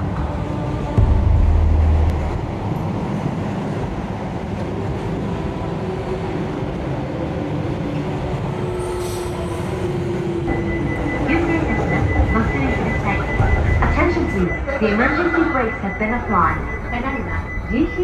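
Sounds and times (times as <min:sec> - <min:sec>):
train wheels rumbling on rails: 0:00.0 - 0:18.0
deep low boom: 0:01.0 - 0:02.8
faint steady tones: 0:09.8 - 0:18.0.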